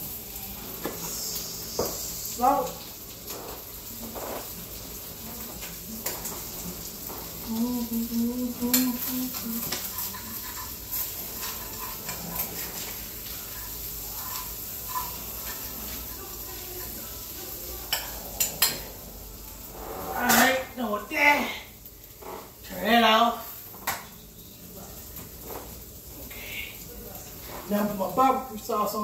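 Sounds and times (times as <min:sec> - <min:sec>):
faint hiss: 0:00.1 - 0:05.1
knife and fork scraping a plate: 0:08.7 - 0:15.7.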